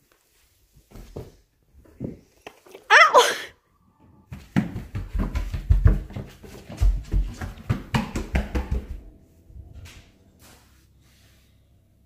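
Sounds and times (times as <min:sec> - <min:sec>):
footsteps on floor: 0:04.3 - 0:09.0.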